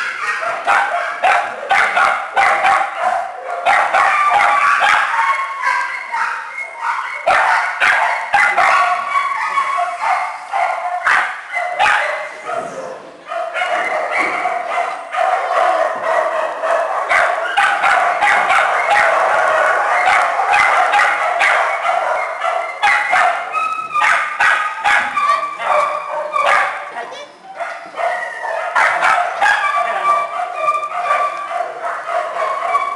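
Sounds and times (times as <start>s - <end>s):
small dogs whining and barking: 3.7s - 15.6s, 21.4s - 32.9s.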